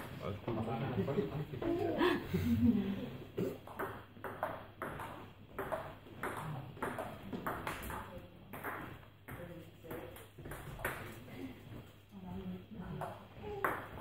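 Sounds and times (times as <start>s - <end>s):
table tennis ball hits: 3.6s - 11.1s.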